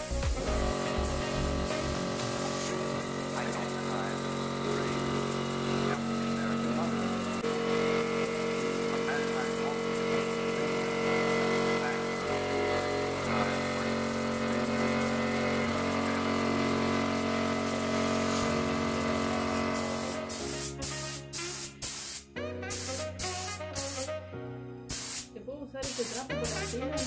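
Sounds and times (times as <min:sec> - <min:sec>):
background music: 0:00.0 - 0:03.3, 0:20.3 - 0:27.0
spray gun hissing: 0:00.0 - 0:24.2, 0:24.9 - 0:27.0.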